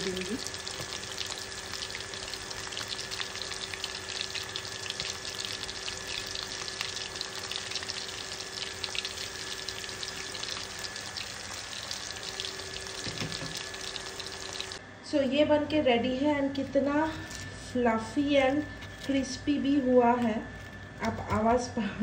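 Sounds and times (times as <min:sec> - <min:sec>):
deep-frying crackle and bubbling: 0:00.0 - 0:14.8.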